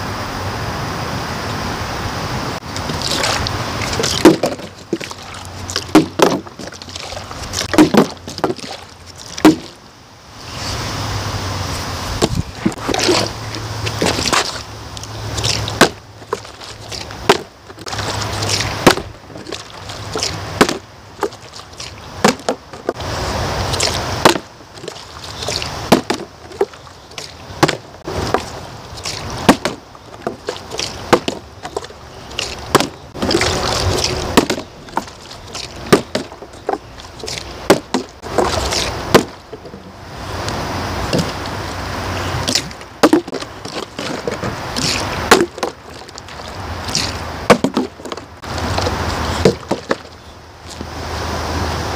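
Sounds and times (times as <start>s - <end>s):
water sloshing in bottle: 2.6s - 9.9s, 11.7s - 51.1s
plastic bottles knocking on hand and ground: 4.0s - 5.2s, 5.8s - 9.8s, 15.6s - 21.4s, 22.2s - 23.0s, 24.2s - 25.0s, 25.8s - 28.6s, 29.4s - 39.8s, 41.1s - 41.4s, 42.5s - 46.2s, 47.5s - 50.2s
wind rumble on microphone: 10.4s - 16.2s.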